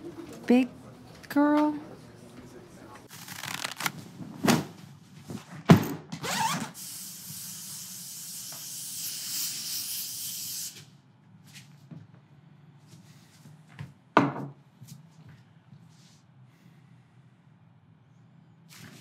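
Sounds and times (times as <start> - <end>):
rubber gloves snapping: 3.2 - 4.0.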